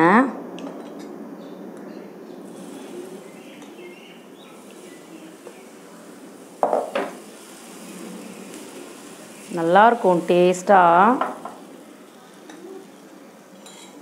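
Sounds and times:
metal spoon clinking on cookware: 13.6s - 14.0s.

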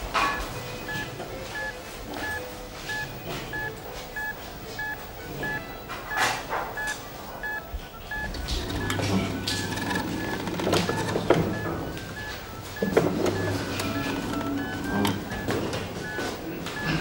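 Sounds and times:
heart monitor beeping: 0.2s - 17.0s.

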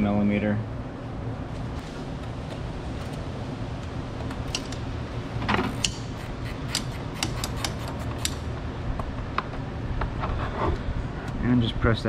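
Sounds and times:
ratchet wrench clicking: 4.5s - 4.8s, 5.7s - 8.5s.

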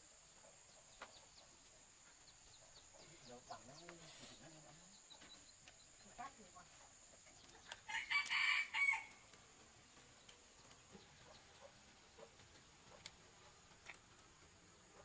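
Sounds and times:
rooster crowing: 7.9s - 9.2s.

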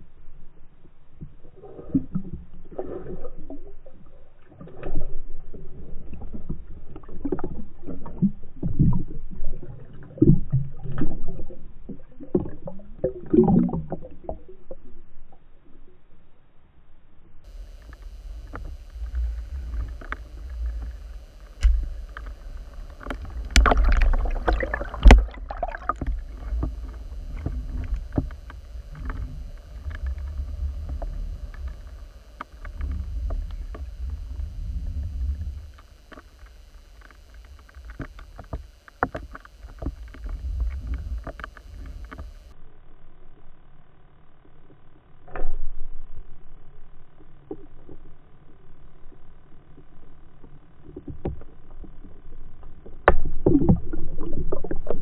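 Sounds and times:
muffled underwater water rumble: 0.0s - 55.0s.

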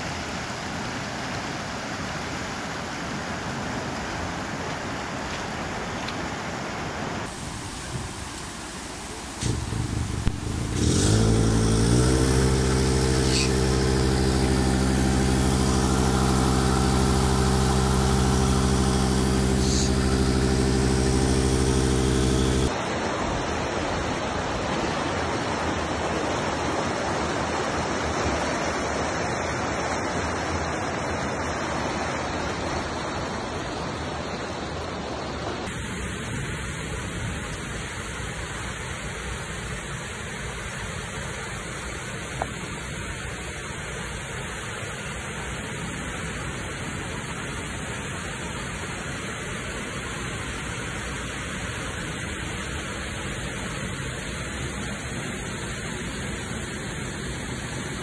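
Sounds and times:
water rushing: 0.0s - 58.0s
engine running: 7.2s - 22.8s.

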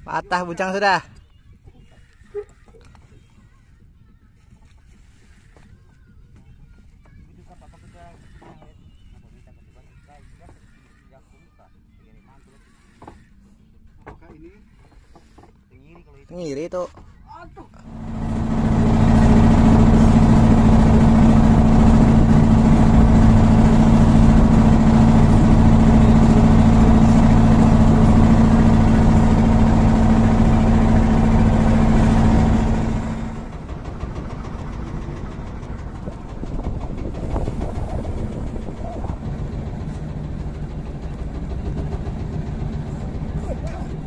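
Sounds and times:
boat engine running: 17.8s - 44.0s.

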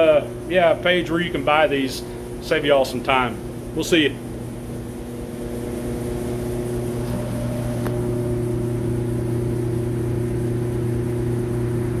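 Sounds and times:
steady mechanical hum: 0.0s - 12.0s.

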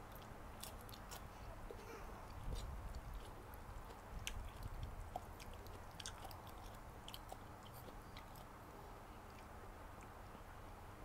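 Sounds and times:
chewing noodles: 0.0s - 8.6s.

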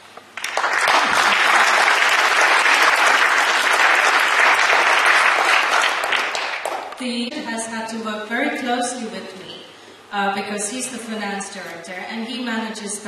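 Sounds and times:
audience applauding: 0.4s - 7.0s.

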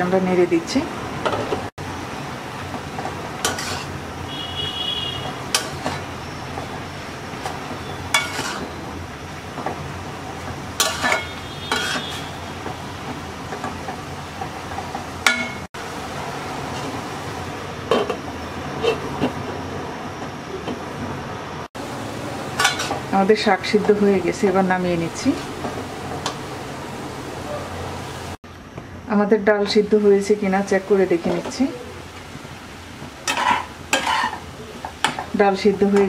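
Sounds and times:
spoon scraping metal pot: 3.4s - 3.9s, 8.1s - 8.8s, 10.8s - 12.4s, 33.2s - 34.4s.

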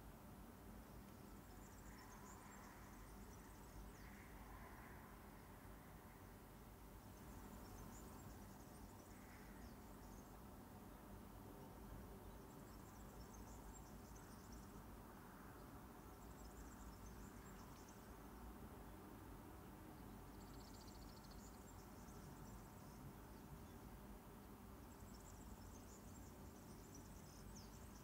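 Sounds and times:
faint high-pitched chirping: 0.8s - 6.4s, 20.0s - 23.9s, 24.8s - 28.0s.

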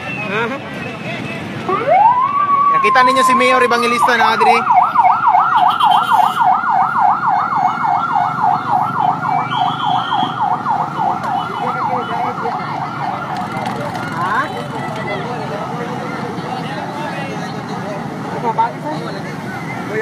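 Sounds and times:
emergency siren yelping: 1.7s - 14.9s.

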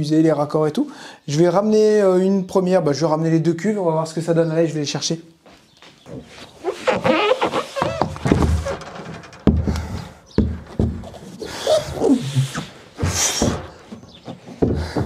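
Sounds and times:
plastic scraping: 6.6s - 14.6s.

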